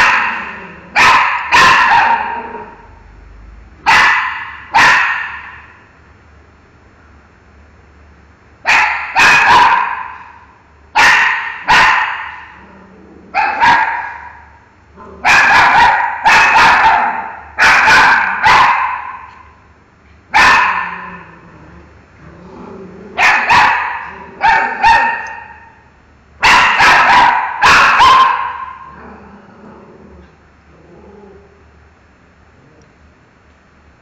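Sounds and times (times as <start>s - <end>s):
dog barking in tiled room: 0.0s - 3.0s, 3.8s - 6.0s, 8.6s - 21.5s, 22.6s - 29.4s.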